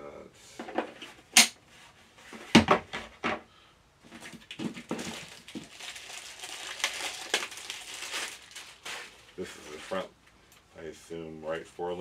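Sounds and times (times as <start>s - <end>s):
packaging rustling: 4.1s - 10.0s.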